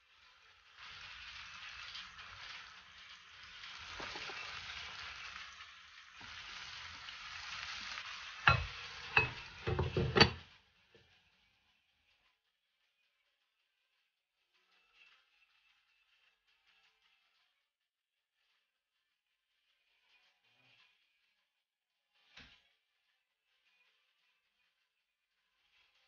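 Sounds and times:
fish and onions sizzling in a pan: 0.0s - 10.5s
glass lid set on a pan: 8.5s - 10.4s.

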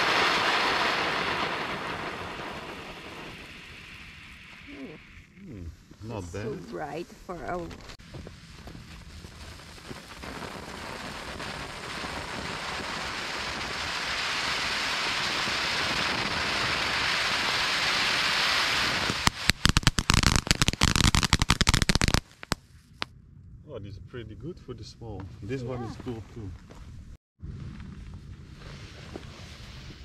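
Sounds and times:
firework crackling pops: 0.0s - 5.4s, 6.0s - 23.1s
firework fountain hissing: 0.0s - 22.6s.

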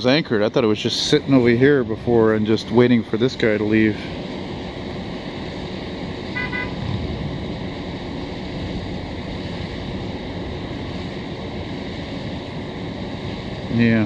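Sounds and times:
road traffic hum: 0.0s - 14.0s
vehicle horn toots: 6.3s - 6.8s.

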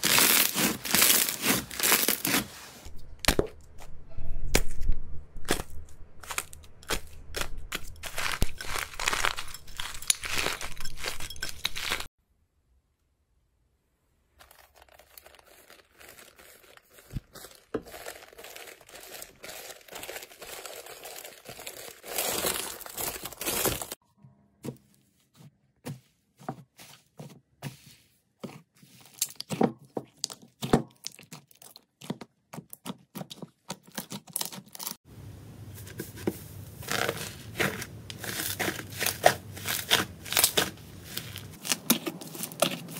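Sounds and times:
dried slime crackling: 0.0s - 2.5s, 5.4s - 12.1s, 14.3s - 24.0s, 36.8s - 42.9s
paper rustling: 14.4s - 24.0s.

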